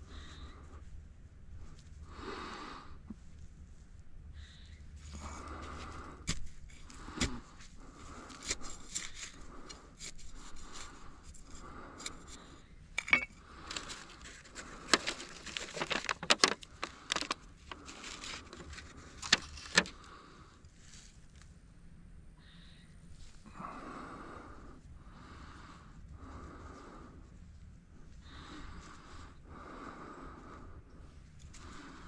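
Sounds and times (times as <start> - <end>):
small hard objects clattering: 13.0 - 19.9.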